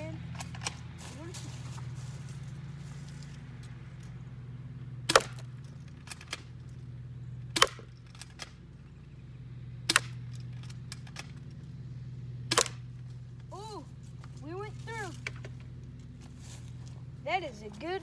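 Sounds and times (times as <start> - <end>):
airsoft gun shots: 5.1 - 5.5, 7.5 - 8.4, 9.8 - 10.2, 12.5 - 12.8.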